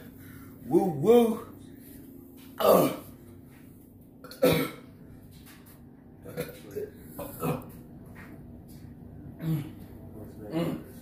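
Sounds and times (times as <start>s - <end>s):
man coughing: 4.3s - 4.9s.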